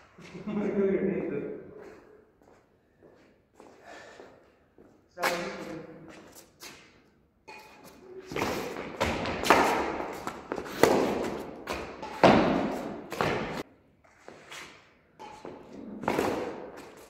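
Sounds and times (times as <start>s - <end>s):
footfalls on concrete: 1.8s - 17.0s
rackets hitting shuttlecock: 7.4s - 13.6s, 15.2s - 17.0s.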